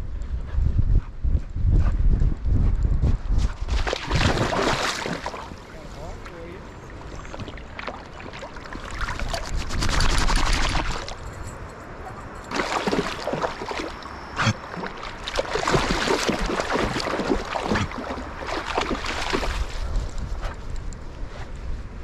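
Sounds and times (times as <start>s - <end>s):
wind rumble on microphone: 0.0s - 7.8s, 8.5s - 12.5s, 15.6s - 22.0s
dog wading through splashing water: 3.7s - 11.2s, 12.5s - 20.0s.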